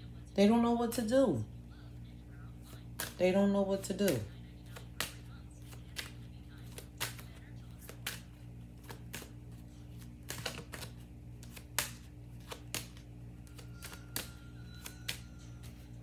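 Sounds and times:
cards being shuffled: 2.6 - 3.2, 3.8 - 16.0.

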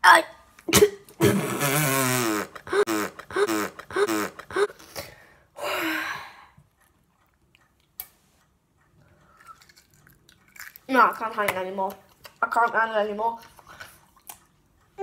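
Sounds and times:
boy gagging and retching: 0.0 - 5.0.

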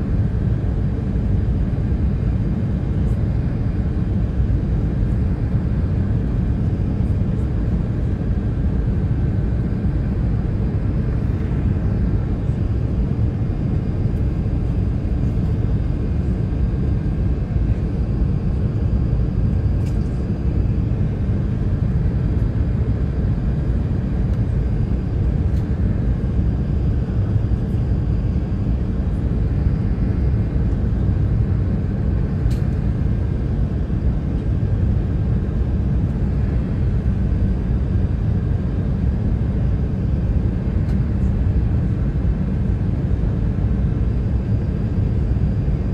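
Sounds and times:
airplane cabin rumble: 0.0 - 45.9
faint steady whine: 0.0 - 45.9
faint click: 32.5 - 32.7.

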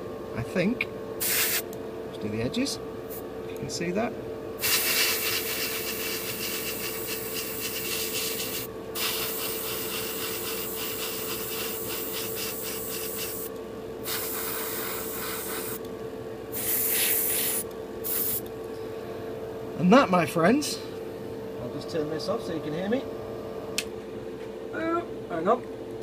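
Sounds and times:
steady hum: 0.0 - 26.0
airbrush spraying hiss: 1.2 - 1.6, 4.6 - 15.8, 16.5 - 18.5.

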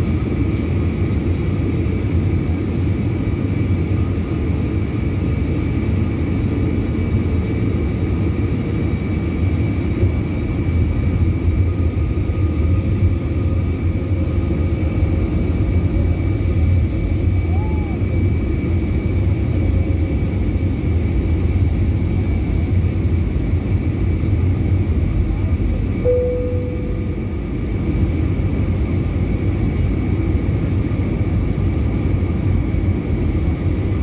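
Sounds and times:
engine and airflow rumble: 0.0 - 34.0
faint high whine: 26.0 - 28.0.

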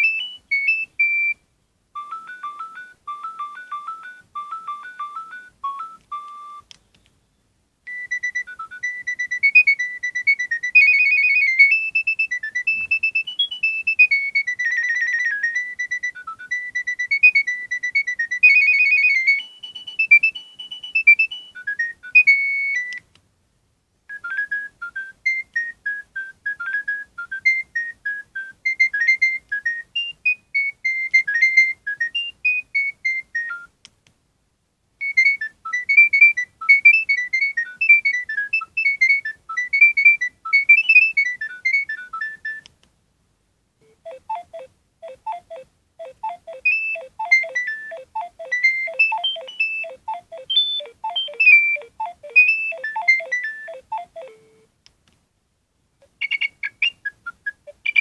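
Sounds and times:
phone ringtone beeping tunes: 0.0 - 1.4, 2.0 - 6.6, 7.9 - 23.0, 35.0 - 42.6, 43.8 - 54.7.

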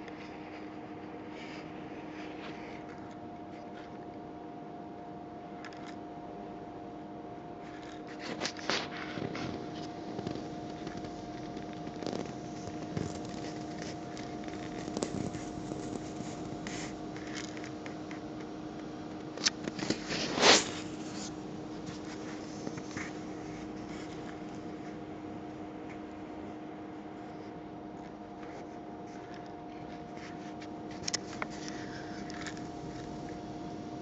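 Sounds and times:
scratchy handling noise: 0.0 - 4.2, 7.5 - 34.0
steady hum: 0.0 - 34.0
loud scrape: 19.8 - 24.3.

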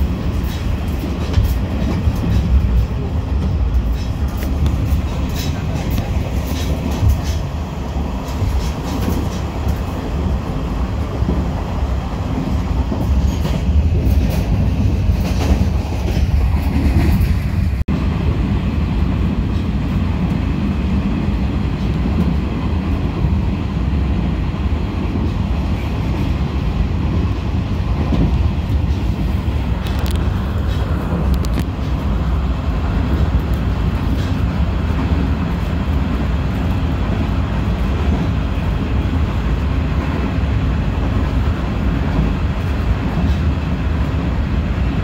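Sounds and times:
train rumbling on rails: 0.0 - 45.0.

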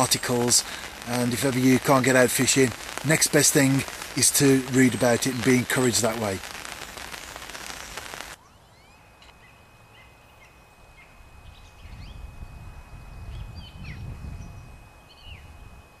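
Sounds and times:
faint steady high tone: 0.0 - 16.0
small birds chirping: 3.9 - 15.5.

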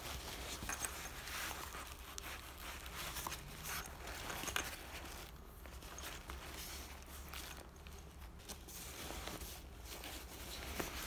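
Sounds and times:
hands rummaging in bag: 0.0 - 11.0.

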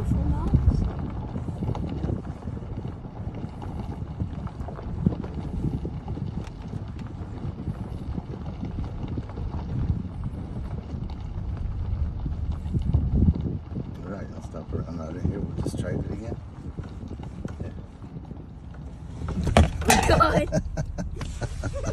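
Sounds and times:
truck engine rumble from inside cab: 0.0 - 21.9.

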